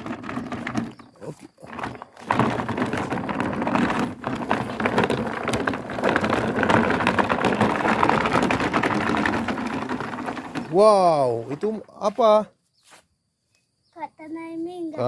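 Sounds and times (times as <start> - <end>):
toy figures knocking inside bin: 0.0 - 11.8
plastic bin scraping over dirt: 0.0 - 12.4.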